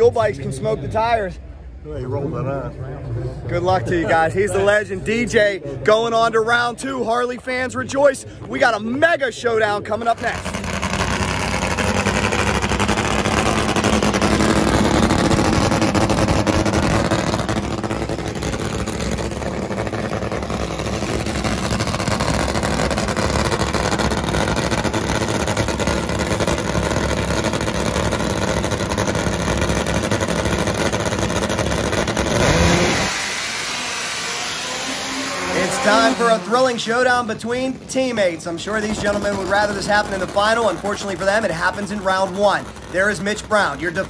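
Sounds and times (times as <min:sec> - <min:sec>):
drag motorcycle engine revving: 0:10.0 - 0:44.0.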